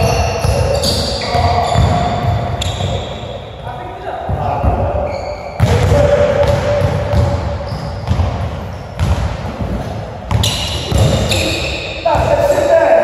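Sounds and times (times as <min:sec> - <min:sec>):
basketball bouncing on wooden floor: 0:00.0 - 0:03.1, 0:04.3 - 0:05.0, 0:05.6 - 0:11.4.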